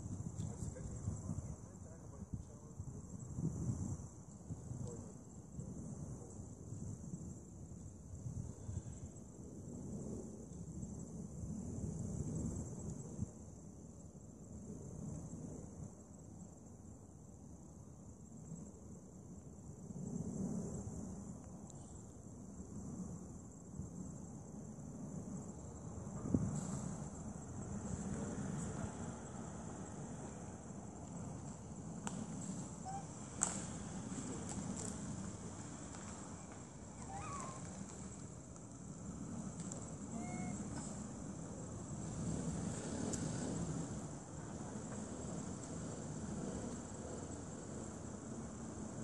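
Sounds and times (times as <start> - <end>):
low uneven rumble: 0.0 - 7.1, 20.0 - 49.0
insect chorus trilling: 20.6 - 42.8.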